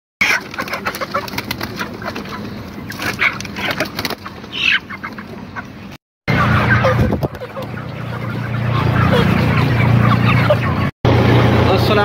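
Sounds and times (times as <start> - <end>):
wings flapping: 0.2 - 5.4, 6.8 - 8.5
chickens squawking and clucking: 0.2 - 11.5.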